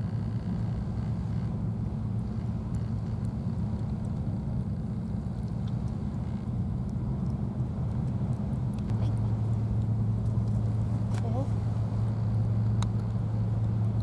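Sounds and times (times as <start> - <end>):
faint ticks: 0.0 - 11.2
steady low rumble: 0.0 - 14.0.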